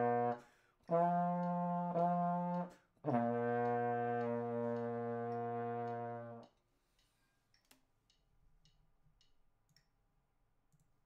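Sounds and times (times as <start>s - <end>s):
trombone long note: 0.0s - 6.4s
faint ticks: 3.6s - 9.9s.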